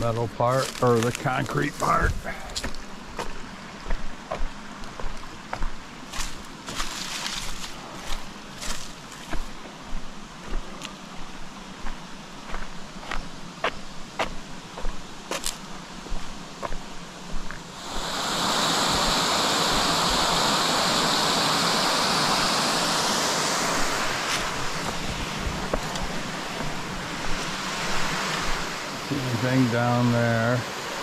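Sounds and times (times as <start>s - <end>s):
small waterfall rushing: 0.0s - 31.0s
footsteps on concrete: 0.6s - 11.0s, 11.8s - 17.6s, 24.3s - 28.0s.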